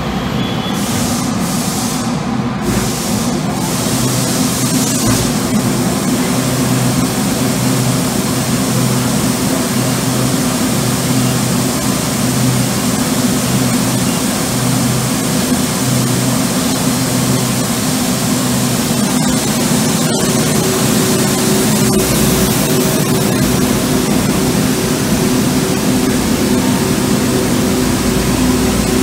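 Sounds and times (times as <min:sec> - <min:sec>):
shot blaster running: 0:02.7 - 0:29.0.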